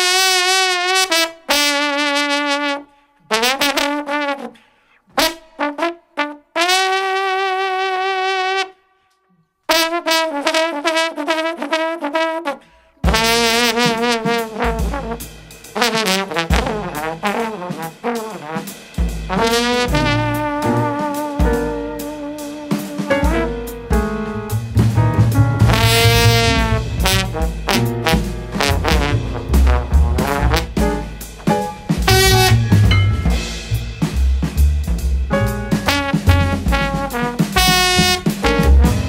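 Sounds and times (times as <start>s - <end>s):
solo jazz trombone: 0.0s - 9.1s, 9.7s - 39.0s
low bass notes: 19.2s - 21.9s, 23.2s - 39.0s.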